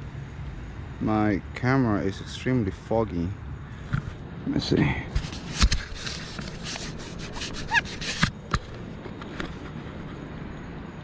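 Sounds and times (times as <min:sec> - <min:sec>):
cloth rubbing on camera housing: 0:05.1 - 0:10.2
small squeaks: 0:05.3 - 0:10.2.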